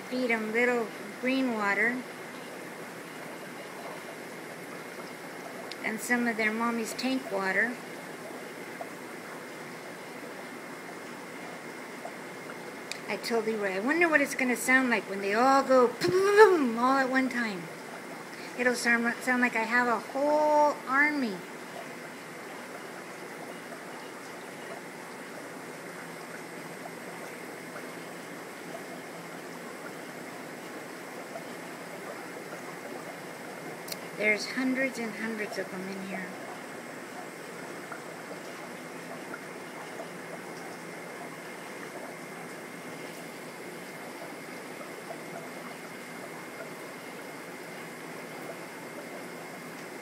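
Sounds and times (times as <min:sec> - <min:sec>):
air line bubbling in water: 0:15.9 - 0:50.0
faint crackles: 0:21.4 - 0:50.0.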